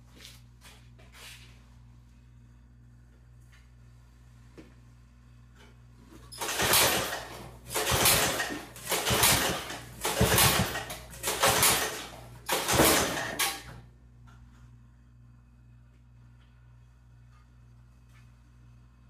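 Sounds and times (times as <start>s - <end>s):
recoil starter pulls: 6.2s - 13.7s.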